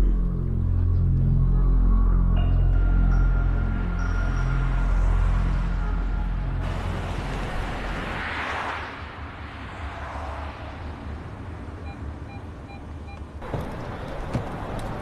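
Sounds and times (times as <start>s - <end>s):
parking sensor beeps: 11.8s - 13.6s
car reversing engine rumble: 11.8s - 15.0s.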